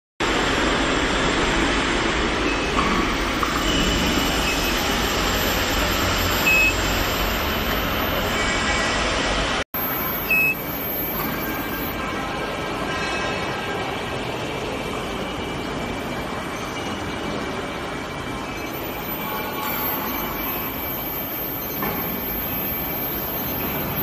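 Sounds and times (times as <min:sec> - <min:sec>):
industrial machine noise: 0:00.2 - 0:24.0
short high electronic beeps: 0:03.7 - 0:08.3, 0:09.8 - 0:12.0, 0:18.7 - 0:24.0.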